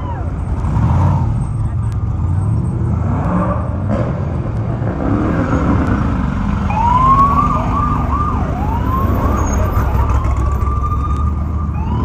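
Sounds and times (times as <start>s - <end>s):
off-road race engines droning: 0.0s - 12.0s
siren wailing: 6.6s - 12.0s.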